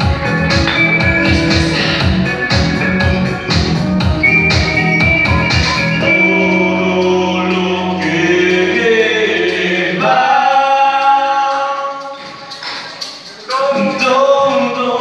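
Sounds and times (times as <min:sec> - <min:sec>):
voices singing in harmony: 0:00.0 - 0:02.2, 0:04.2 - 0:12.5
sustained keyboard chords: 0:00.0 - 0:14.7
drum beat with bass: 0:00.0 - 0:15.0.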